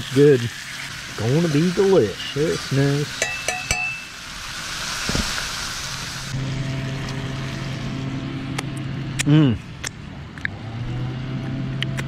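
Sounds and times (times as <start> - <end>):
fish sizzling in a skillet: 0.0 - 8.0
metal fork clinking on pan: 3.2 - 4.1
steady low hum: 6.0 - 11.8.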